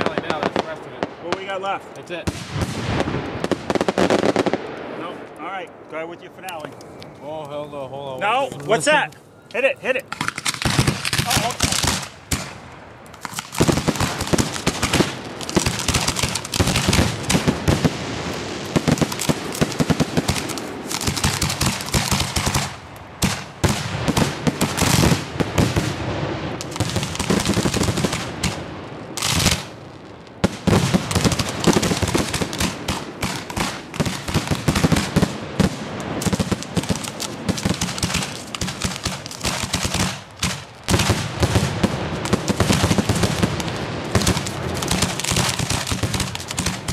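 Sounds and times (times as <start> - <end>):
fireworks barrage: 0.0 - 5.4, 9.6 - 46.9.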